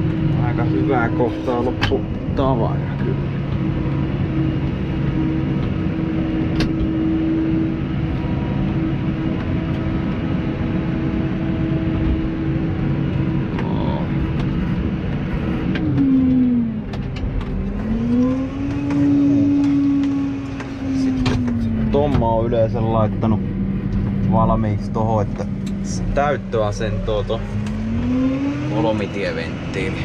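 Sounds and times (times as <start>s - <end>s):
tractor diesel engine running: 0.0s - 27.9s
steady whine: 0.0s - 30.0s.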